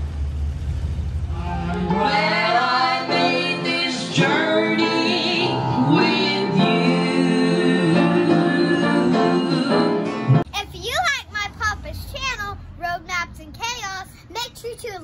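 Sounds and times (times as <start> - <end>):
instrumental backing music: 1.6 - 10.4.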